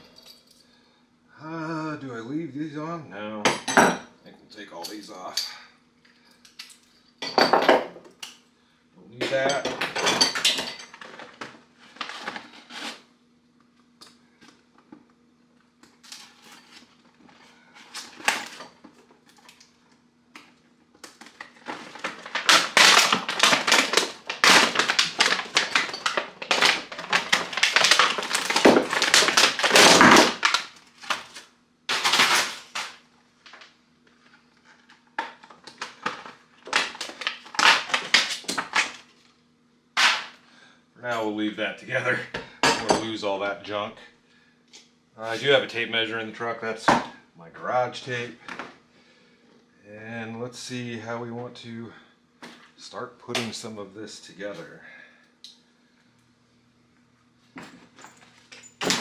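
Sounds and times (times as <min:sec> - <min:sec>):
faint steady hum: 0:00.0 - 0:59.0
plastic packaging crackling: 0:21.1 - 0:33.7, 0:34.8 - 0:39.3.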